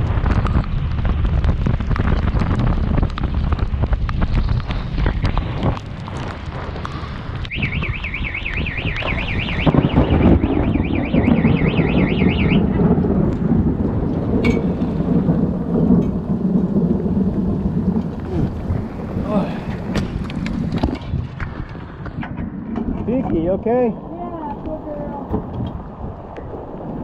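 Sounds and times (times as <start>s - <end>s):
heavy rain: 0.0s - 27.0s
wind on microphone: 0.0s - 27.0s
warbling electronic alarm: 7.5s - 12.9s.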